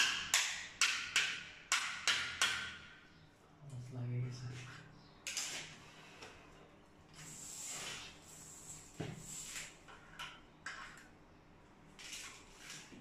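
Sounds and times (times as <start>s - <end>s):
metal hose rustling and scraping: 11.9s - 13.0s.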